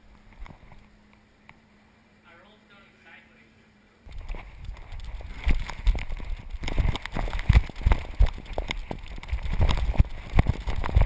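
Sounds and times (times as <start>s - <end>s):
camera thumping and rattling: 0.3s - 0.9s, 4.1s - 11.0s.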